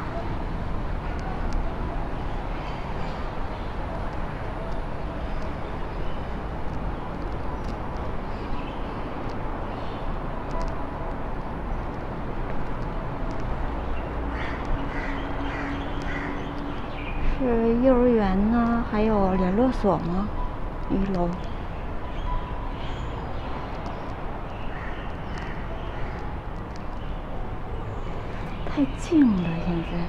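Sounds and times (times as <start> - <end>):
low rumble of traffic: 0.0 - 30.0
bird calls: 14.3 - 17.4.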